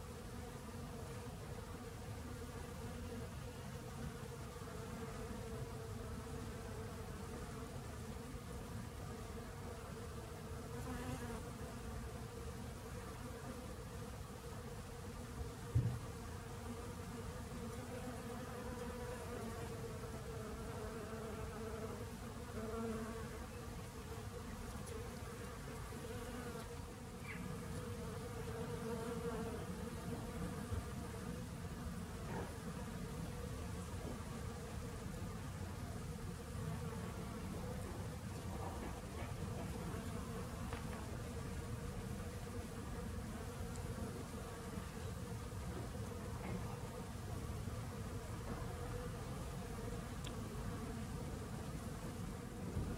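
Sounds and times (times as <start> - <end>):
brief thump: 15.7 - 16.0.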